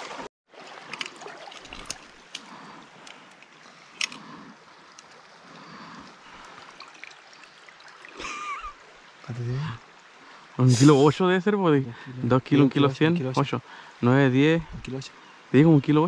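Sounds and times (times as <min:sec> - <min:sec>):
stream water trickling: 0:00.0 - 0:16.0.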